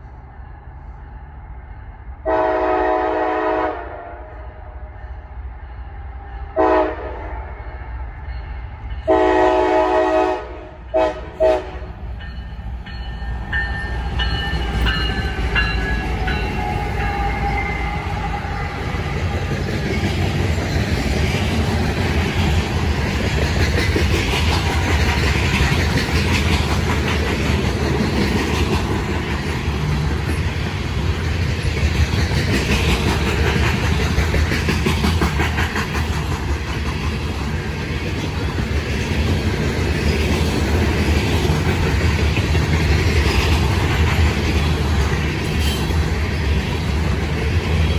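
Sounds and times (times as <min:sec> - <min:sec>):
train rumbling past: 0:00.0 - 0:47.9
locomotive air horn blasts: 0:02.2 - 0:04.4, 0:06.6 - 0:07.3, 0:09.1 - 0:11.9.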